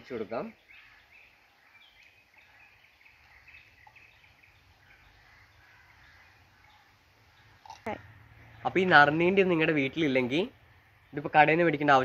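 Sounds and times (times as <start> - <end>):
faint bird chirps: 0.1 - 8.9.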